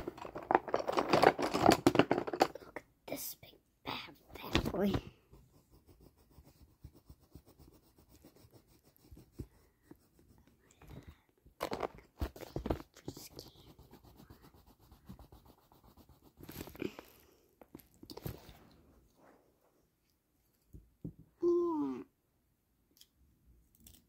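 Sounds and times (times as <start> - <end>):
pencil scratching on paper: 4.9 - 10.6, 13.1 - 16.8.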